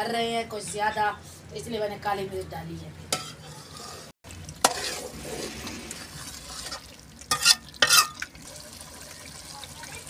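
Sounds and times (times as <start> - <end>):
metal spoon scraping a pan: 3.1 - 8.3
gravy sizzling: 3.4 - 10.0.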